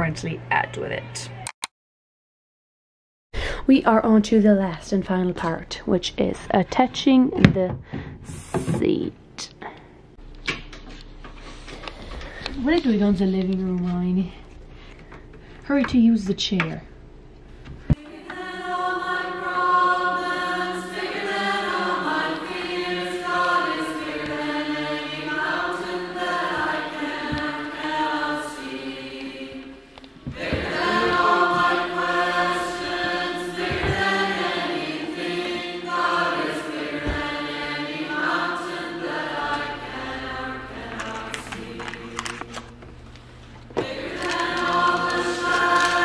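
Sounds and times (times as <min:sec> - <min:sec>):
choir singing: 0:17.9 - 0:42.8, 0:43.7 - 0:46.0.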